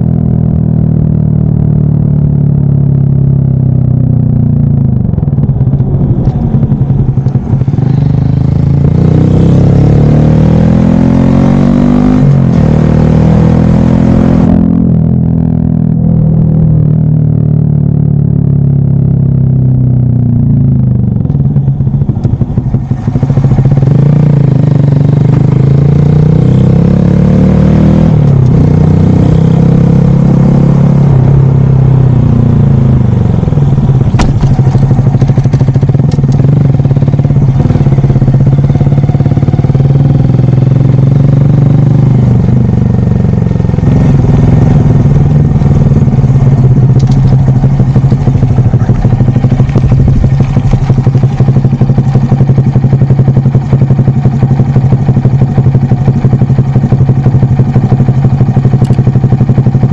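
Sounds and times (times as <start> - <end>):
motorcycle engine revving: 0.0 - 59.9
wind rushing over microphone: 4.9 - 9.3, 43.8 - 51.8.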